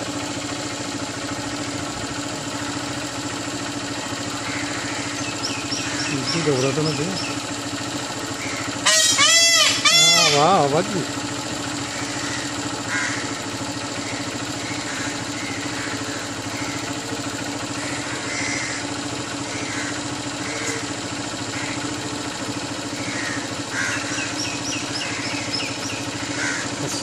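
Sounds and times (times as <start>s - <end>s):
steady mechanical hum: 0.0s - 27.0s
birds calling: 0.1s - 27.0s
crows cawing: 4.2s - 6.4s, 8.3s - 10.6s, 11.7s - 22.2s, 23.0s - 27.0s.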